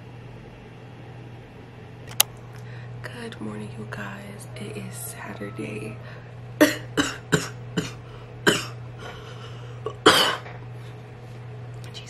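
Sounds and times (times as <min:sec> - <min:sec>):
woman coughing: 0:06.6 - 0:08.8, 0:09.9 - 0:10.6.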